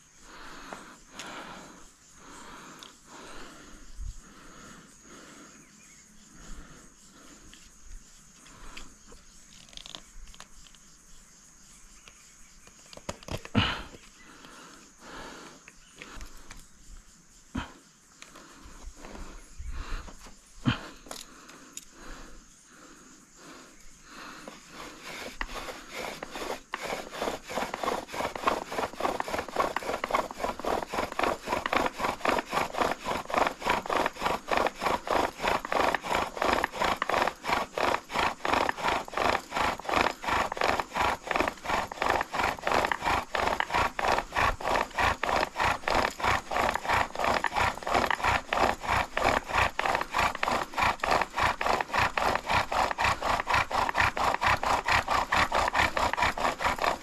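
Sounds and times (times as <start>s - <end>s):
bow drill sawing and grinding: 20.0s - 57.0s.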